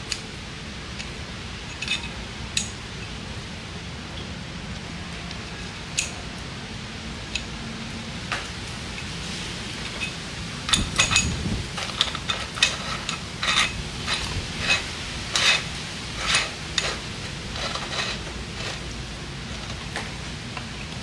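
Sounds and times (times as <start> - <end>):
metal fittings clinking: 1.7 - 2.8, 9.8 - 18.9.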